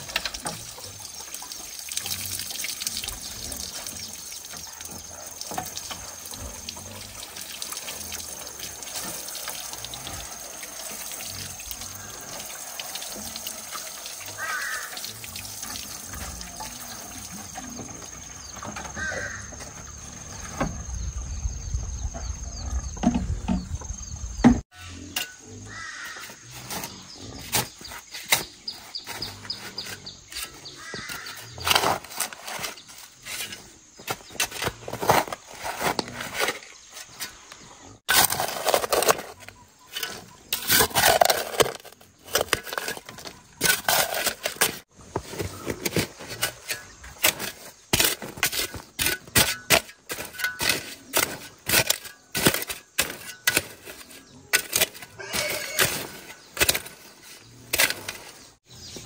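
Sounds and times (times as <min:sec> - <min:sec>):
shovel scraping and thudding soil: 0:22.2 - 0:59.0.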